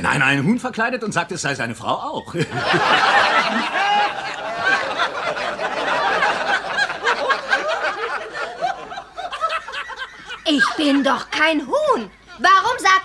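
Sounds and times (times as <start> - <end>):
audience laughing: 2.4 - 11.4.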